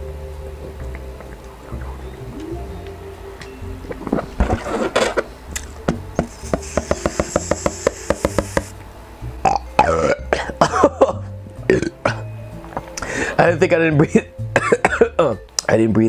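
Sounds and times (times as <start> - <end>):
helium hissing from balloon: 6.2 - 8.8
person burping: 9.4 - 12.2.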